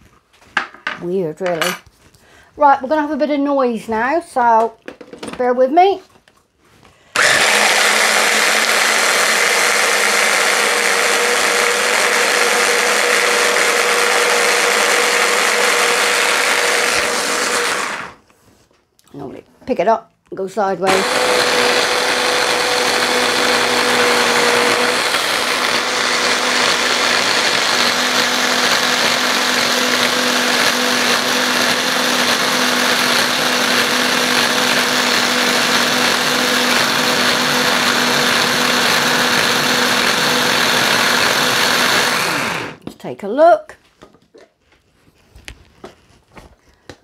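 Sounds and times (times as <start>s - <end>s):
electric hand blender motor whine: 7.2s - 18.2s, 20.9s - 42.8s.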